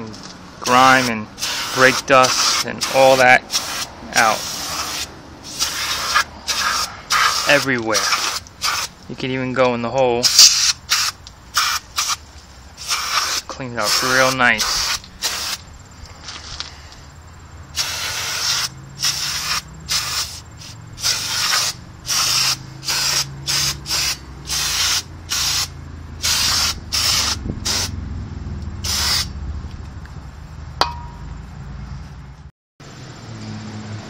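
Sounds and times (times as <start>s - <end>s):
aerosol spray bursts: 0.6s - 9.0s, 10.2s - 15.6s, 17.8s - 27.9s, 28.8s - 29.3s.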